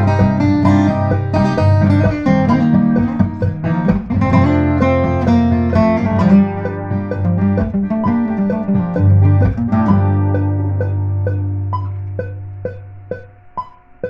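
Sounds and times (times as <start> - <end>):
acoustic guitar playing: 0.0 - 13.7.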